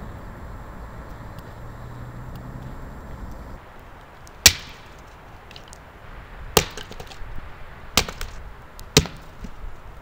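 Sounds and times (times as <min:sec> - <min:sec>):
axe chopping firewood: 0:04.4 - 0:05.8, 0:06.5 - 0:07.3, 0:08.0 - 0:09.6.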